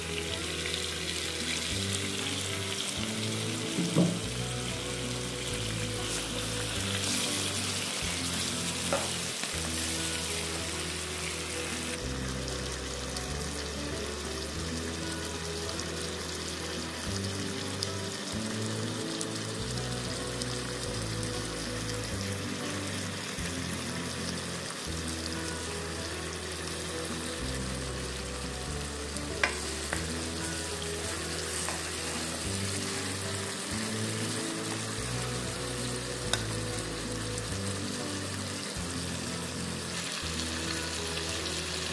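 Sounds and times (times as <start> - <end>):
chicken sizzling in oil: 0.0 - 41.9
low background music: 0.0 - 41.9
brief knock: 3.8 - 4.2.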